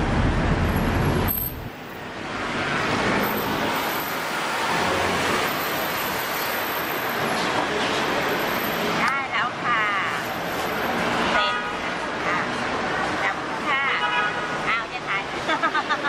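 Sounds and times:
vehicle engine rumble: 0.0 - 2.0.

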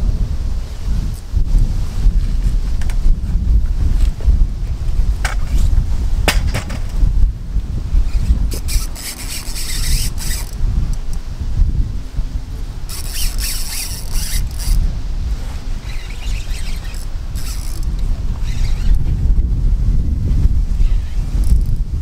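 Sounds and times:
wind buffeting microphone: 0.0 - 22.0
rustling and scraping: 2.2 - 7.1, 8.0 - 11.1, 12.8 - 19.2.

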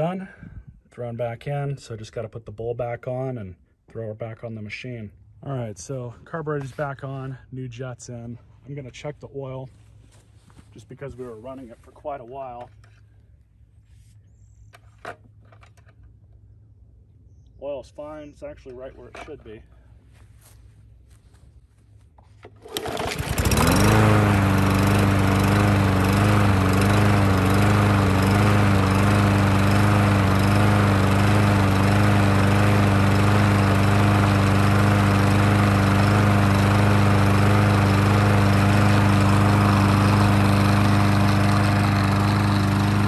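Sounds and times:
lawn mower engine running: 22.2 - 43.0.

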